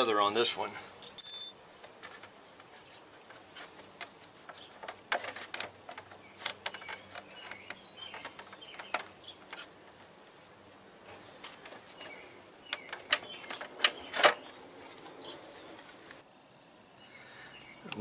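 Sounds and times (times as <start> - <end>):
clicks and knocks on plastic fender: 3.2 - 9.7.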